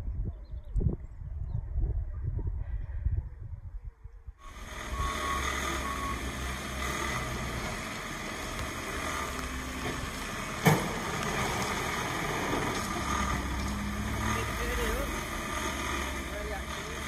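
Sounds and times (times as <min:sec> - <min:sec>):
wind buffeting microphone: 0:00.0 - 0:05.4
diesel excavator drone: 0:04.4 - 0:17.0.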